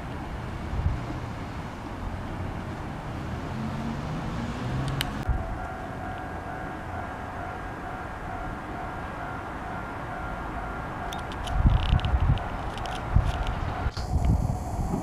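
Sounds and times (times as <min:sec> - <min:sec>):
low traffic rumble: 0:00.0 - 0:15.0
car driving past: 0:02.0 - 0:05.5
faint steady high tone: 0:05.3 - 0:11.3.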